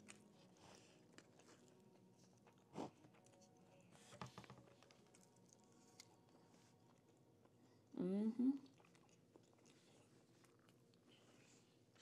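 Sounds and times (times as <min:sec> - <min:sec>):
soft chewing: 0:00.0 - 0:12.0.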